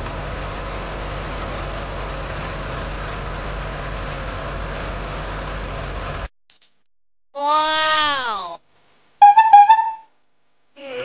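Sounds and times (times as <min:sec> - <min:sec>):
truck engine drone: 0:00.0 - 0:06.3, 0:09.2 - 0:10.0.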